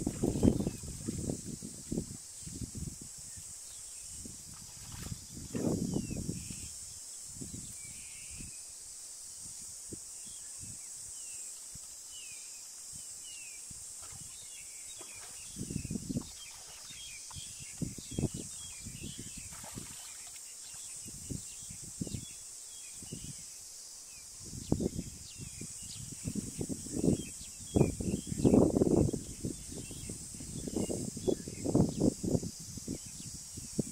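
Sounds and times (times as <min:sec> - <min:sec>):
high insect drone: 0:00.0 - 0:33.9
small birds chirping: 0:10.2 - 0:23.5.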